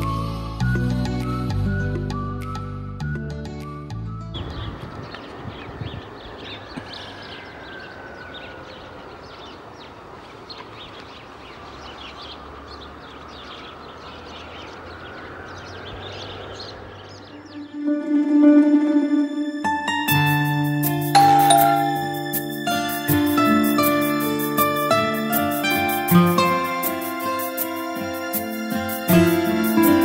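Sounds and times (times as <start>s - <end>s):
small birds chirping: 4.3s - 17.9s.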